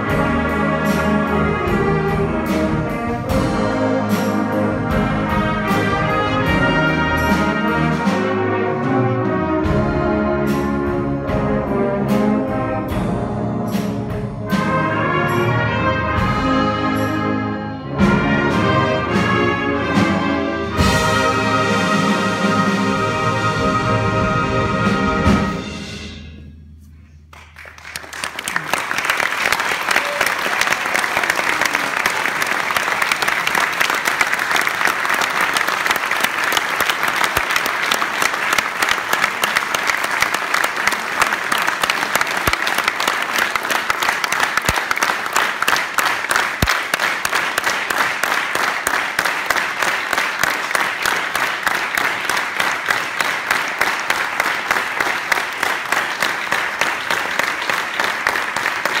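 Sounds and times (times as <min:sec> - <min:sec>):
band music: 0:00.0 - 0:59.0
audience applauding: 0:27.3 - 0:59.0.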